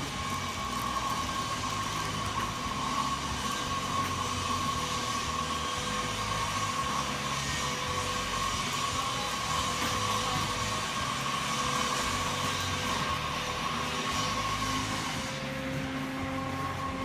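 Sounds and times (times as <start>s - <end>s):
mechanical drone with whine: 0.0s - 17.0s.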